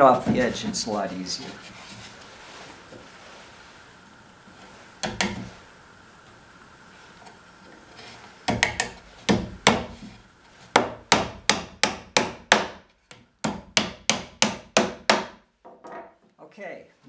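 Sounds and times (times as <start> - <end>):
hammer driving nails into wood: 8.5 - 10.0, 10.7 - 15.4.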